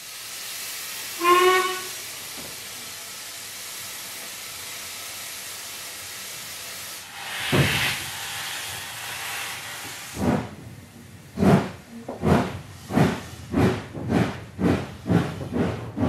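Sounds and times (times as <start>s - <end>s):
steam hissing: 0.0s - 16.0s
steam whistle blast: 1.2s - 2.1s.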